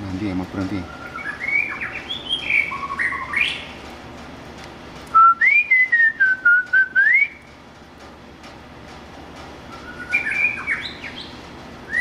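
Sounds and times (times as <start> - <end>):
bird singing whistled notes: 0.8 - 3.7, 5.1 - 7.5, 9.7 - 12.0.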